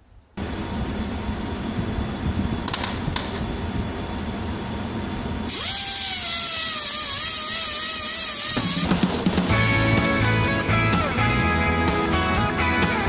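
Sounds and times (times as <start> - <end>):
air grinder hissing and whining: 5.5 - 8.9.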